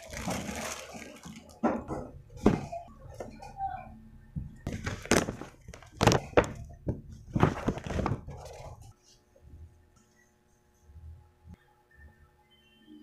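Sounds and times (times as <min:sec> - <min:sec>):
paper bag rustling: 0:00.0 - 0:01.6, 0:04.7 - 0:08.9.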